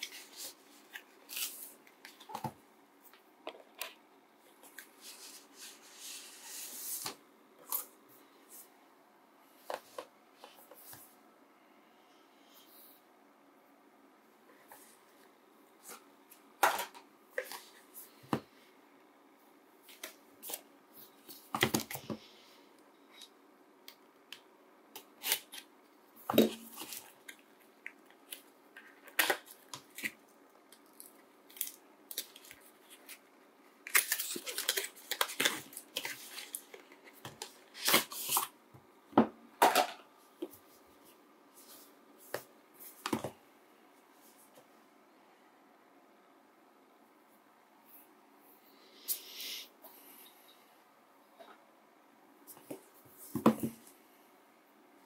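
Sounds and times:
paper rustling and crinkling: 30.8 - 38.5.

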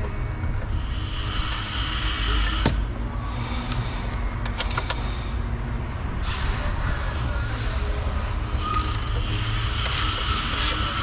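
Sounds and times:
wrench metallic clicks: 1.4 - 1.8, 4.4 - 5.0, 8.7 - 11.0.

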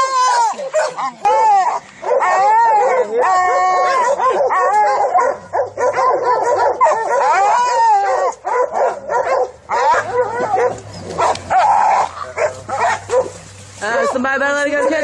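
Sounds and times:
hunting dogs baying and yelping: 0.0 - 15.0.

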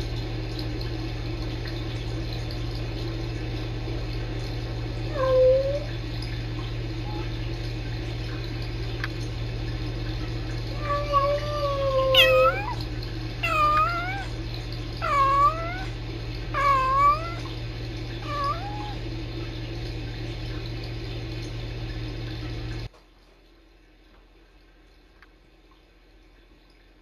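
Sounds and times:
low electrical hum: 0.0 - 27.0
kitten meowing: 10.9 - 12.8, 13.4 - 14.3, 15.0 - 15.9, 16.6 - 17.5, 18.2 - 19.0.

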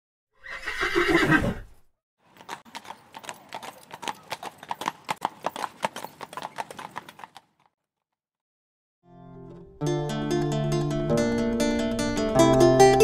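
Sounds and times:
horse hoofbeats: 2.2 - 7.8.

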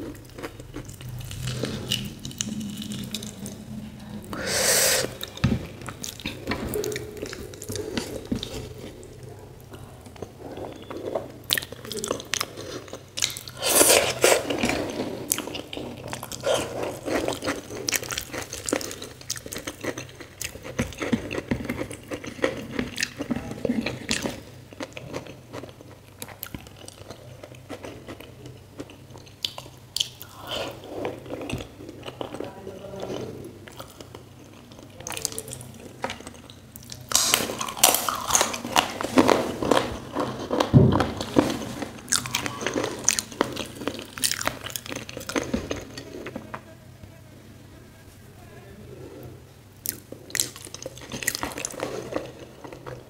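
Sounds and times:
person chewing food: 0.0 - 46.6, 49.7 - 53.0.

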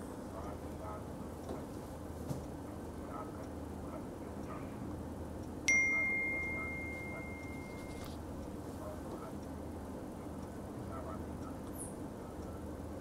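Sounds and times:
low room hum: 0.0 - 13.0
phone message alert ding: 5.7 - 8.2.

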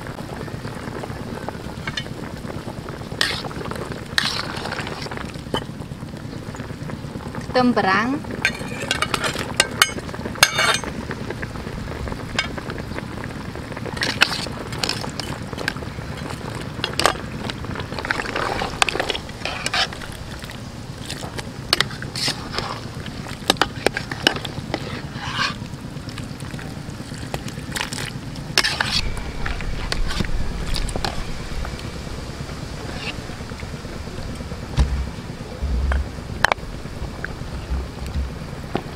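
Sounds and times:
metal ladle scraping a pot: 3.2 - 3.5, 4.2 - 5.0, 18.3 - 20.1, 21.7 - 25.7, 28.6 - 31.2
steady hiss: 28.2 - 38.9.

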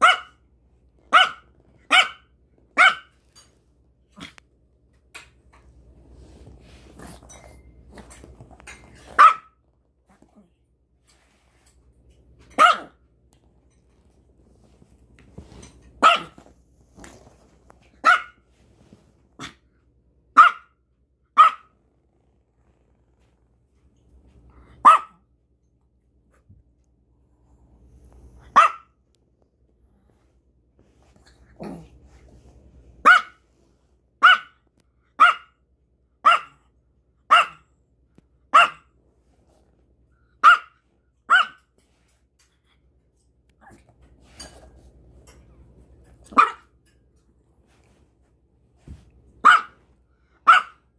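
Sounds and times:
small dog barking: 0.0 - 0.4, 1.1 - 3.2, 9.1 - 9.6, 12.5 - 13.0, 16.0 - 16.4, 17.9 - 18.4, 19.4 - 19.7, 20.3 - 21.8, 24.7 - 25.3, 28.4 - 29.0, 33.0 - 33.4, 34.2 - 35.6, 36.2 - 36.6, 37.2 - 37.7, 38.5 - 38.9, 40.4 - 41.7, 46.2 - 46.7, 49.4 - 49.8, 50.4 - 50.9.

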